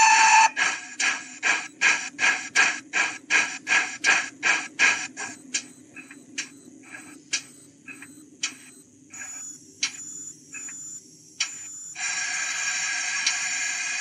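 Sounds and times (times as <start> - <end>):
steam hissing: 0.0 - 5.4, 12.0 - 14.0
steam locomotive exhaust chuffs: 0.0 - 7.2, 12.0 - 14.0
sharp metallic ticks: 7.3 - 8.7.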